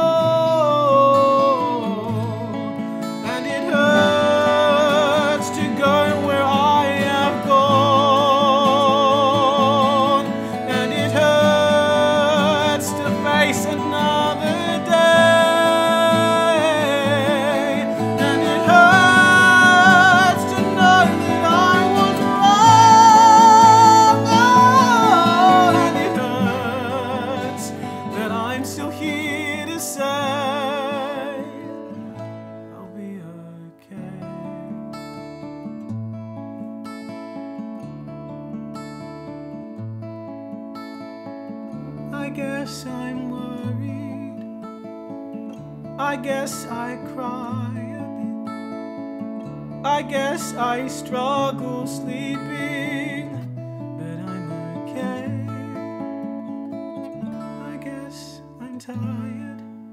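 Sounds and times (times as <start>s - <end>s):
man singing long vibrato notes: 0.0s - 34.5s, 49.8s - 53.4s, 54.0s - 56.1s
instrumental accompaniment: 2.2s - 29.7s.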